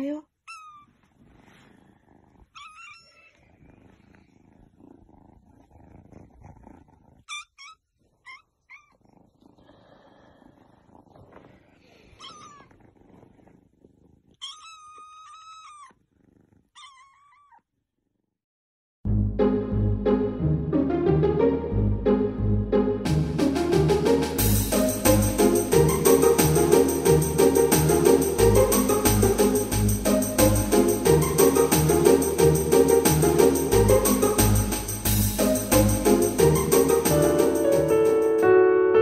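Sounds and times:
kitten purring: 0.1s - 18.3s
kitten mewing: 7.2s - 13.2s
loud music: 19.1s - 38.6s.

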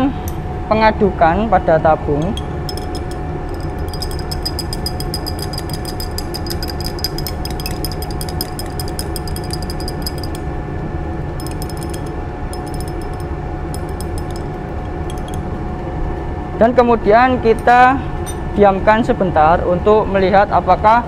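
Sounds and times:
fan hum: 0.0s - 21.0s
glass rod clicking in test tube: 2.7s - 10.4s, 11.4s - 15.4s.

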